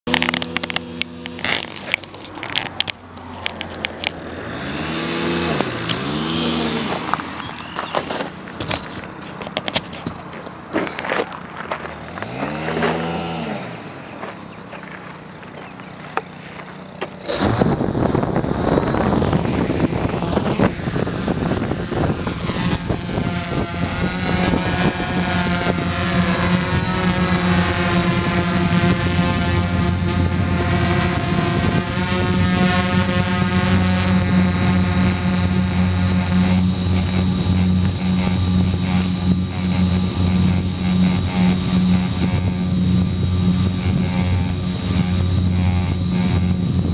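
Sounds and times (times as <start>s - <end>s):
clicks and scrapes of handling: 0.1s - 4.2s, 8.6s - 11.3s
drone motors whirring: 12.0s - 15.6s, 17.2s - 46.9s.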